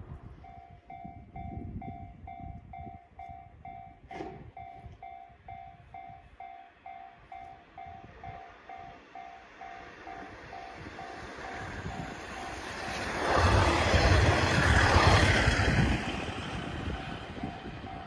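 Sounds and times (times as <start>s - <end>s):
level-crossing alarm dinging: 4.6s - 13.1s
electric train rushing: 7.4s - 18.0s.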